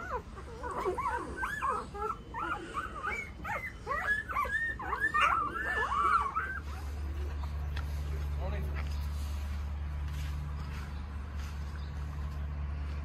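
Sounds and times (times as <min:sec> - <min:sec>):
puppies whimpering: 0:00.0 - 0:08.0.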